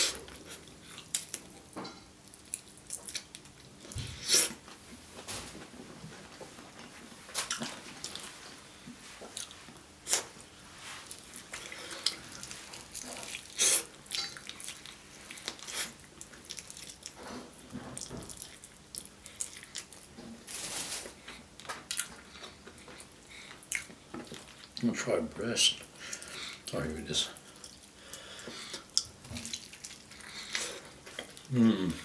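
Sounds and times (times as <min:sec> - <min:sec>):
wet chewing with lip smacks: 0:28.7 - 0:31.5.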